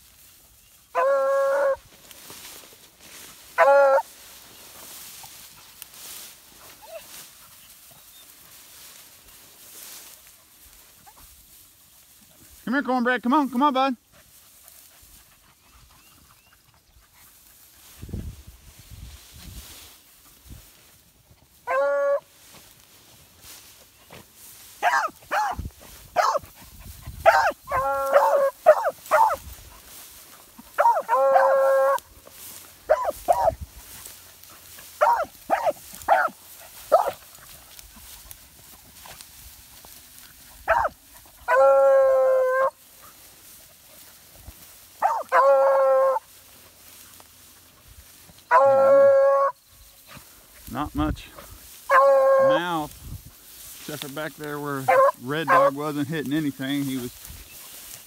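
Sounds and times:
hound barking and bawling: 0.9 - 1.8, 3.6 - 4.1, 21.6 - 22.2, 24.8 - 25.6, 26.2 - 26.5, 27.2 - 29.4, 30.7 - 32.1, 32.9 - 33.6, 35.0 - 37.2, 40.6 - 42.8, 45.0 - 46.3, 48.5 - 49.6, 51.9 - 52.6, 54.9 - 55.8.

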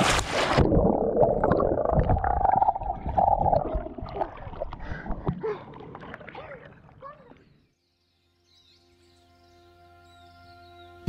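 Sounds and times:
muffled underwater gurgling: 0.5 - 7.4.

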